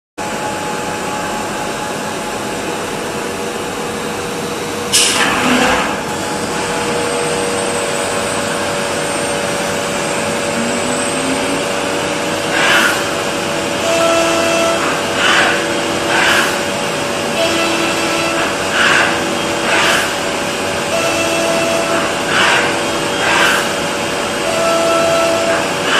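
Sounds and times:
machine spindle whirring: 0:00.8 - 0:25.9.

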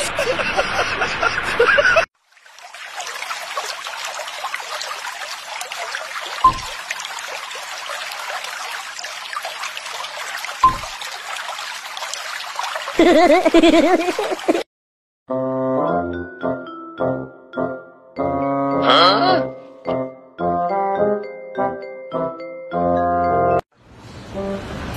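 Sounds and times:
water trickling and bubbling: 0:02.2 - 0:14.6
water plops: 0:02.3 - 0:14.6.

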